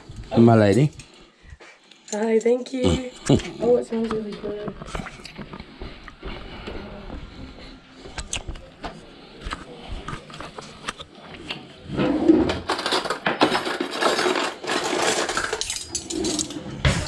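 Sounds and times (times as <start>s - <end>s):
cutlery rattling and clinking: 12.4s - 17.0s.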